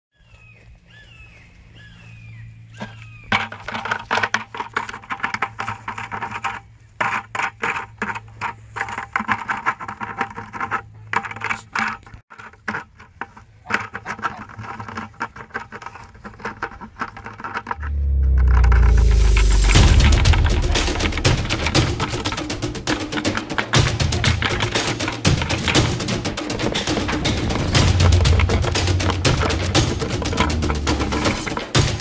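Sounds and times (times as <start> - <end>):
loud booming: 17.8 - 23.1.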